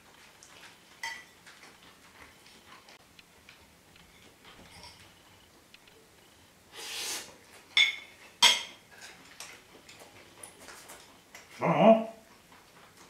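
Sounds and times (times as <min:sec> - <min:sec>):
tableware scraping: 0:04.1 - 0:05.1, 0:07.8 - 0:09.2
metallic tableware clinks: 0:07.8 - 0:08.8.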